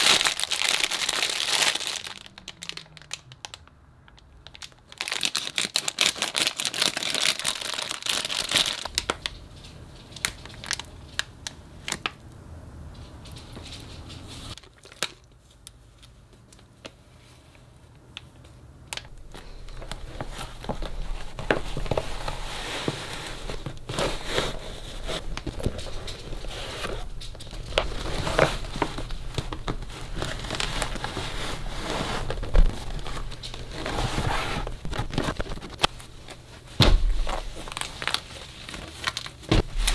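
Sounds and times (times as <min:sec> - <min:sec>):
plastic packaging crinkling: 0:00.0 - 0:12.2, 0:14.5 - 0:15.5, 0:18.9 - 0:39.9.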